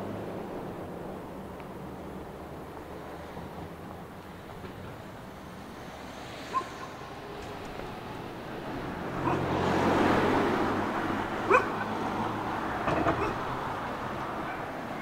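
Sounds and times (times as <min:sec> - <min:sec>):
car driving past: 0:05.6 - 0:15.0
dog yelping: 0:06.5 - 0:07.0, 0:09.2 - 0:09.6, 0:11.4 - 0:12.0, 0:13.0 - 0:13.4.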